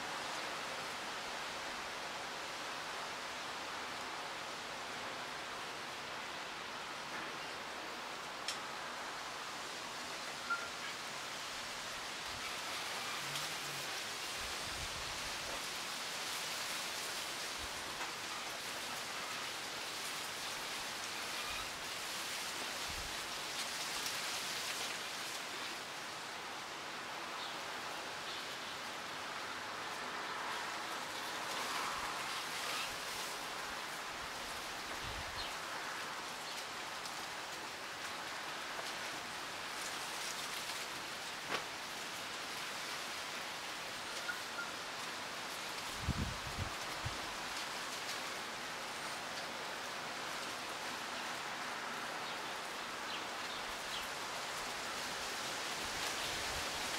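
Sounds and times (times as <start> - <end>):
wind rustling leaves: 0.0 - 56.9.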